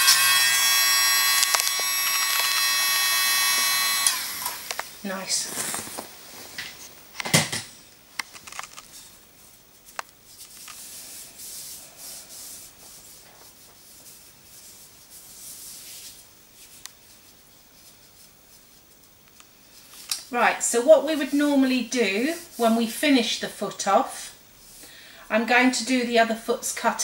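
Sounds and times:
gloved hands brushing skin: 5.1 - 7.0, 9.4 - 20.1.

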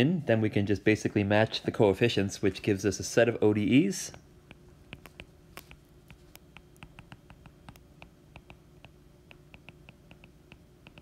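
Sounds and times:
stylus tapping on tablet screen: 4.5 - 11.0.

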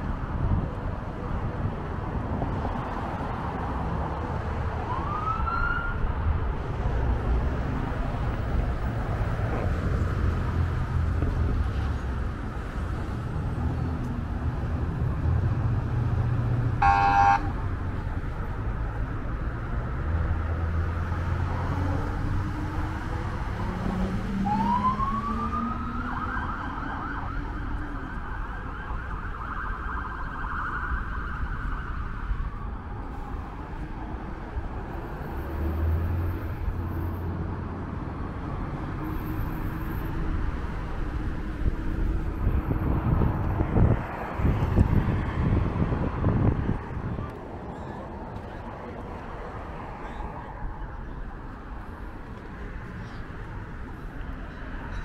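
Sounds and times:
traffic rumble: 0.0 - 55.0
police siren whooping: 4.8 - 6.1, 24.3 - 33.1
car horn blast: 16.8 - 17.5.

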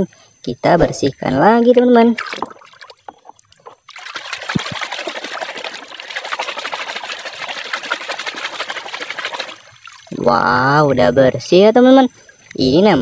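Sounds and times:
muddy water splashing: 2.1 - 10.6.

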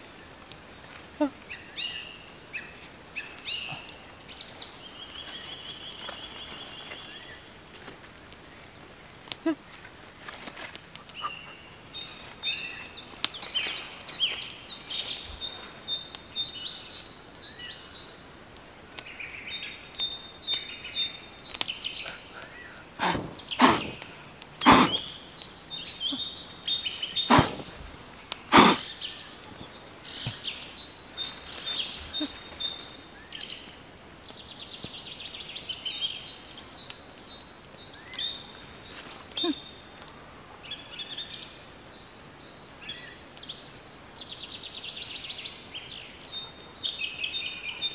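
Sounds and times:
forest birds singing: 0.0 - 7.7, 8.3 - 47.9
loud sharp cracks: 23.0 - 25.1, 27.3 - 28.8.

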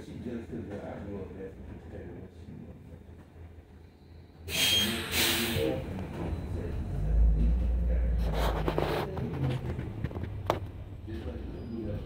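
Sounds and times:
bus rumble and electric hum: 0.0 - 12.0
air hiss: 4.5 - 5.8.

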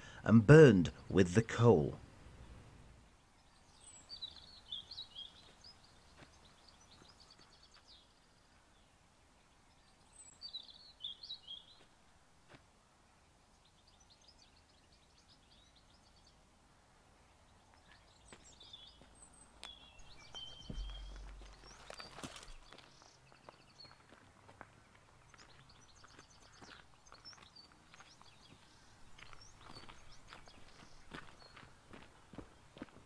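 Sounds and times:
open-air hiss: 0.0 - 22.5
small songbirds singing: 2.4 - 12.0, 13.1 - 16.5, 17.1 - 24.2, 24.8 - 32.8.

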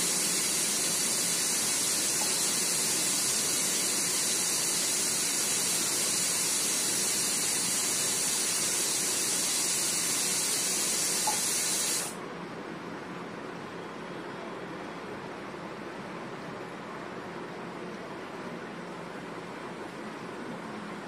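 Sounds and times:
high-pitched hiss: 0.0 - 12.2.

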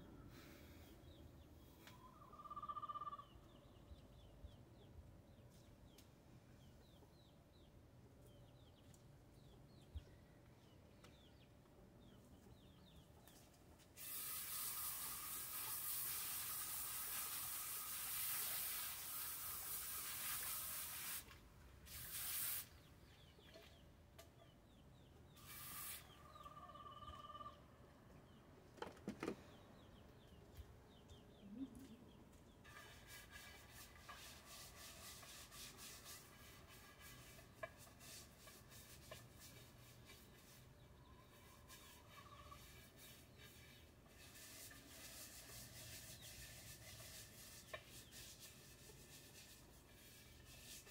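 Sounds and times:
faint bird chirps: 0.0 - 13.4, 22.7 - 28.4, 29.4 - 33.0
garden hose spraying water: 13.8 - 23.1, 25.4 - 26.2, 32.6 - 40.6, 41.3 - 50.9.

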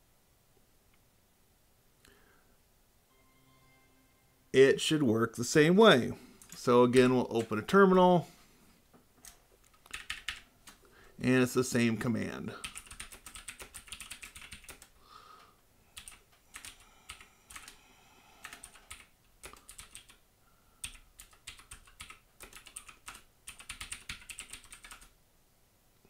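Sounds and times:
computer keyboard typing: 6.4 - 7.6, 9.2 - 10.8, 12.6 - 15.0, 16.0 - 17.8, 18.4 - 20.2, 20.8 - 25.1.

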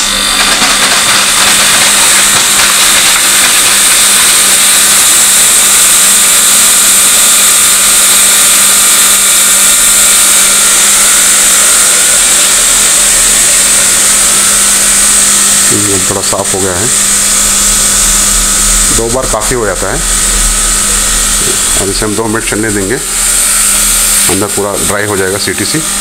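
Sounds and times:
loud steady gas hiss: 0.0 - 26.0
low hum: 16.8 - 24.6.

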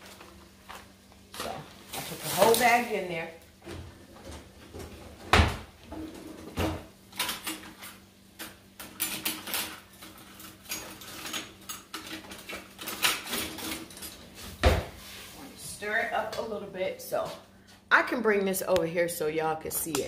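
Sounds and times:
kitchen items clattering on countertop: 3.6 - 15.0.

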